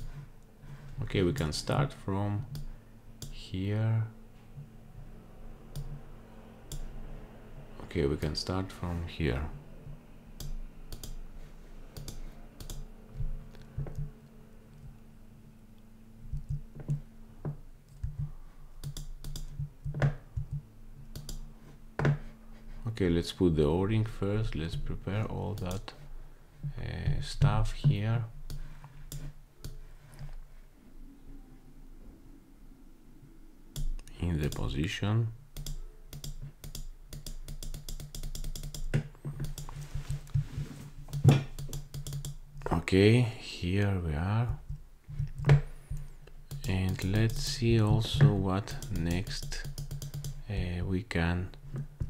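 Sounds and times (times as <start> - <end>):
faint low hum: 0.0 - 52.0
keyboard typing clicks: 10.4 - 11.2, 17.9 - 21.5, 35.6 - 40.4, 41.1 - 42.4, 44.7 - 47.5, 48.1 - 50.4.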